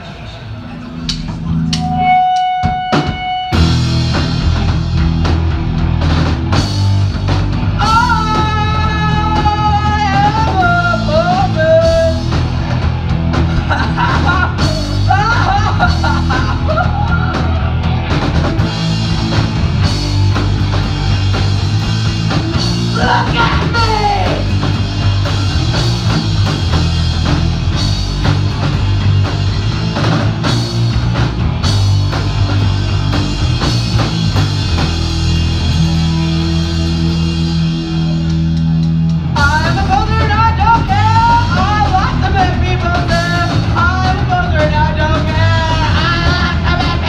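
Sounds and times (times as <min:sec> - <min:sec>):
punk band playing live: 0:00.0 - 0:47.0
person singing: 0:07.8 - 0:12.3, 0:13.6 - 0:17.6, 0:22.9 - 0:24.5, 0:39.4 - 0:47.0.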